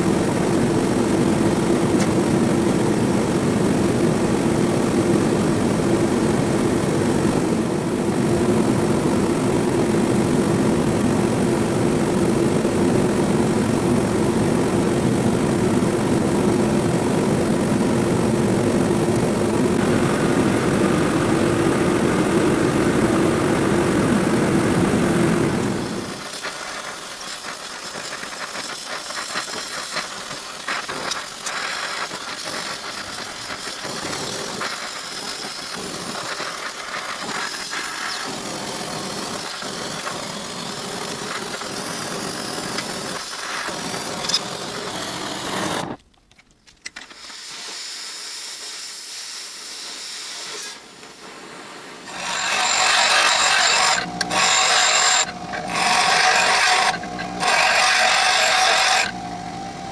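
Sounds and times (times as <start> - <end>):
gas torch flame hissing: 0.0 - 46.0, 47.0 - 59.9
bench grinder grinding steel: 24.7 - 46.0, 52.0 - 59.9.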